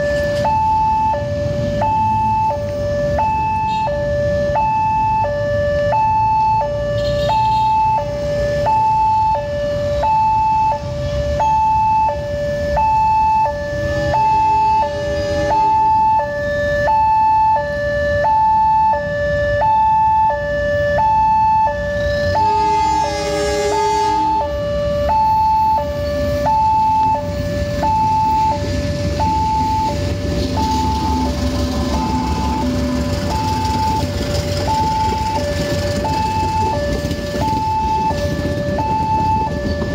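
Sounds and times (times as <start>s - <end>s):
level crossing two-tone alarm: 0.0s - 39.9s
train horn: 22.1s - 24.6s
train passing rumble: 22.2s - 25.0s, 27.0s - 39.9s.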